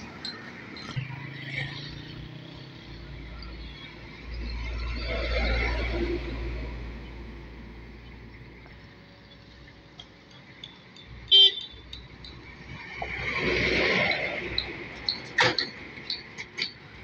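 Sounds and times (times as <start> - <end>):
trucks passing: 0.0 - 17.0
truck horn toot: 11.3 - 11.8.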